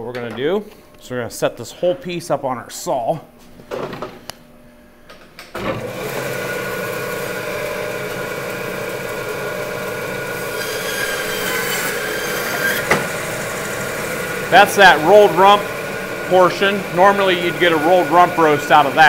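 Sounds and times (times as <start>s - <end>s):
band saw cutting meat: 5.8s - 19.0s.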